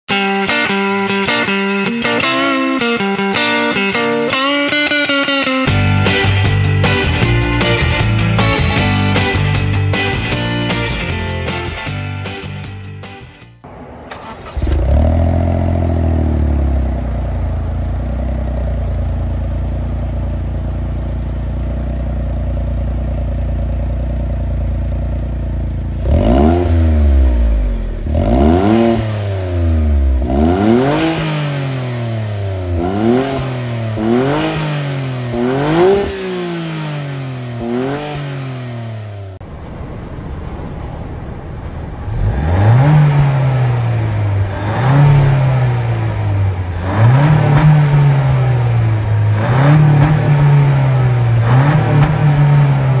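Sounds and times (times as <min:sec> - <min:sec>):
car engine idling and revving: 0:05.7 - 0:13.0, 0:13.6 - 0:53.0
quieter car exhaust idling: 0:13.6 - 0:30.7, 0:39.4 - 0:46.8.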